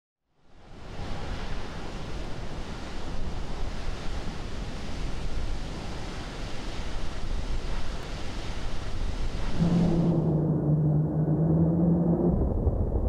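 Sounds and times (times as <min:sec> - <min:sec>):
rocket exhaust roar: 0:03.1 - 0:13.0.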